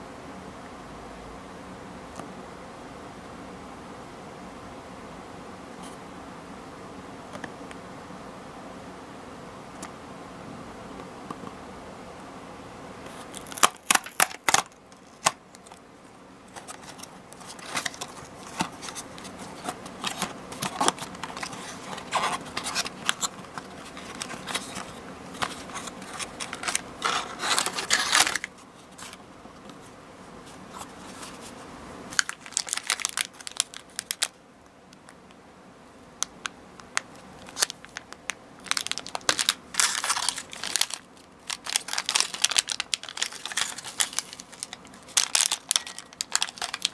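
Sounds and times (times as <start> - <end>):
wrappers crinkling and rustling: 13.1 - 15.8, 16.5 - 29.2, 29.8 - 34.4, 36.4 - 46.9
wrapper tearing: 13.2 - 15.8, 16.5 - 29.2, 32.1 - 34.4, 36.9 - 46.9.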